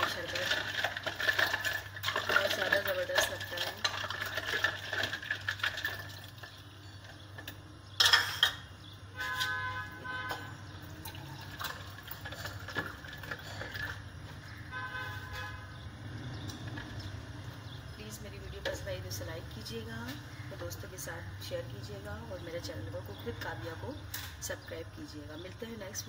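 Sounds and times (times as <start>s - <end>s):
liquid pouring into cup: 0.0s - 6.6s, 10.9s - 14.1s.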